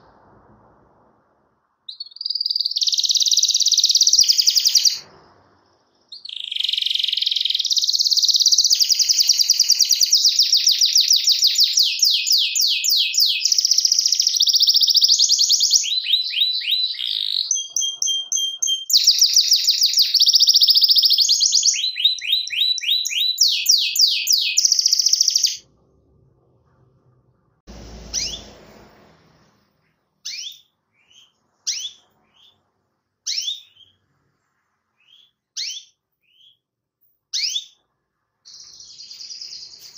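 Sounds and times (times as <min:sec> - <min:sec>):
canary singing trills: 0:01.9 - 0:05.0, 0:06.0 - 0:25.7, 0:28.0 - 0:28.6, 0:30.2 - 0:34.1, 0:34.9 - 0:36.7, 0:37.3 - 0:37.8, 0:38.5 - 0:39.9.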